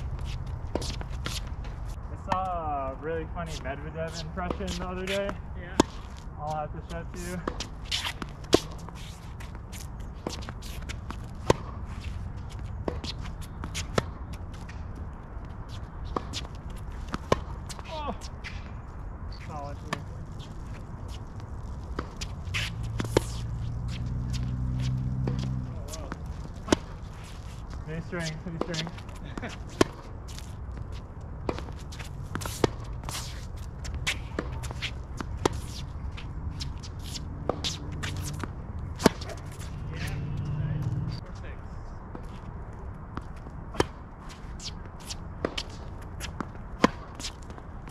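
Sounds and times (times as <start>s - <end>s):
shoe scuffs on court: 0.0s - 14.9s, 19.3s - 41.3s, 43.2s - 47.9s
racket hitting tennis ball: 3.5s - 6.2s, 7.4s - 14.8s, 15.8s - 18.7s, 21.8s - 41.2s, 43.0s - 47.9s
ball bouncing: 21.8s - 27.0s, 37.0s - 41.2s.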